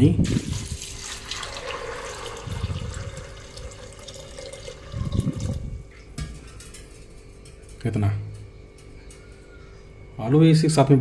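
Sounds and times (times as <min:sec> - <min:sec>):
water pouring and splashing: 0:00.3 - 0:05.6.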